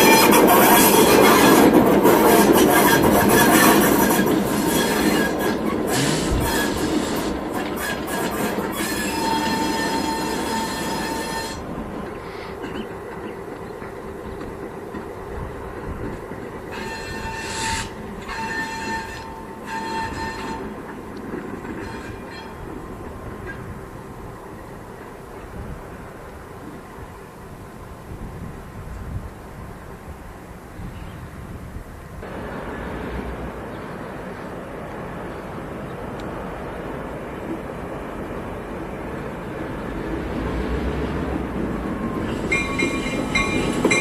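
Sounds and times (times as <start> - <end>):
train air horn blasts: 0.0 - 12.5, 16.7 - 20.9, 21.7 - 22.7
diesel locomotive rumbling: 0.0 - 44.0.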